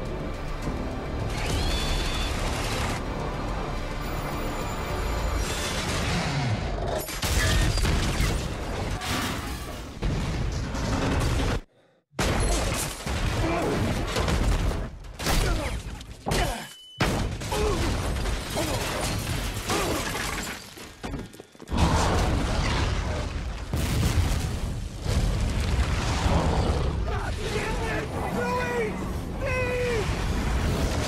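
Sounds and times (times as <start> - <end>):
shattering and crashing debris: 17.0 - 21.4
explosion blasts: 21.7 - 28.2, 29.0 - 31.0.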